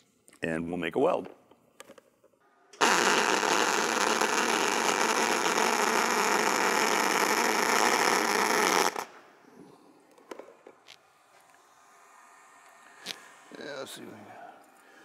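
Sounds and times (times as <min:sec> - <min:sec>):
welding arc hiss: 0:02.8 - 0:09.2.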